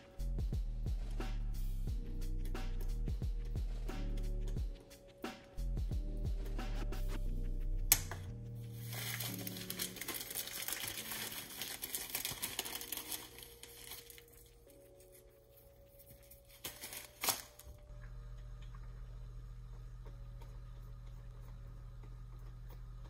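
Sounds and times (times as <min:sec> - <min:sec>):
plastic packet crinkling: 0:08.8 - 0:15.1, 0:16.2 - 0:17.8.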